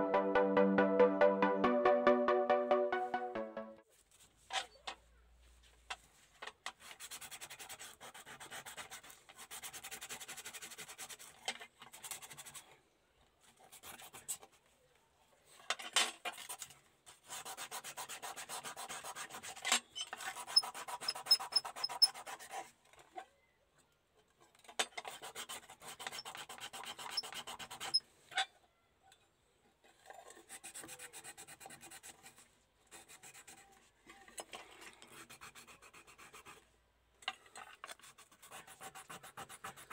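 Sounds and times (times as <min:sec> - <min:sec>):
sandpaper rubbing on metal: 0:17.3 - 0:22.5, 0:25.4 - 0:28.0.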